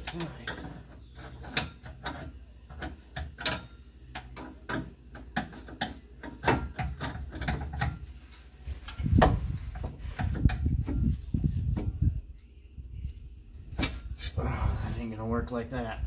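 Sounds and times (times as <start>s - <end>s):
hand tools clicking and clanking: 0.0s - 11.1s.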